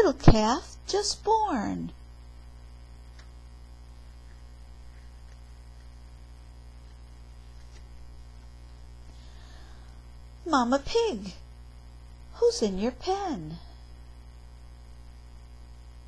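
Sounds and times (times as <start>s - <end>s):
low electrical mains hum: 0.0s - 16.0s
book page turning: 4.1s - 6.2s, 6.8s - 8.5s.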